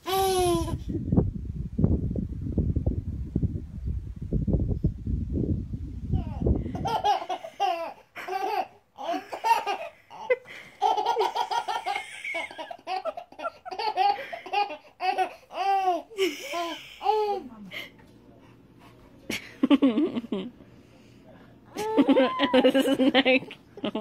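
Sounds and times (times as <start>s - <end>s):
baby laughing: 6.2s - 17.4s, 21.8s - 23.2s.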